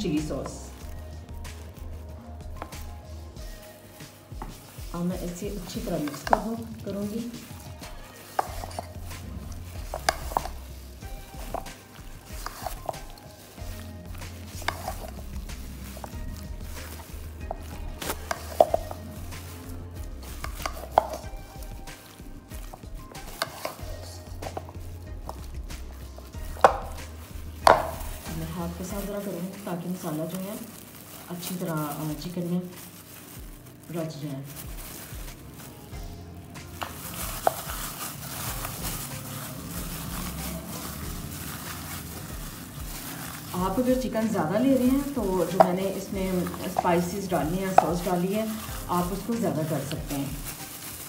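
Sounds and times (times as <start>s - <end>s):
wet squelching of meat: 0.0s - 36.2s, 36.8s - 51.0s
plastic glove crinkling: 0.0s - 51.0s
spatula stirring chicken in bowl: 0.2s - 31.5s, 36.7s - 51.0s
spatula knocking against bowl: 27.7s - 28.0s.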